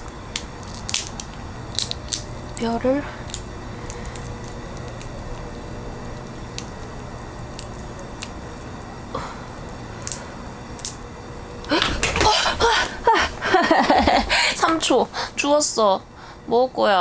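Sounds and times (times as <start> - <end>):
crab shell snapping: 0.0 - 5.5, 6.5 - 6.9, 7.5 - 8.6, 10.0 - 11.0
steady low hum: 0.0 - 17.0.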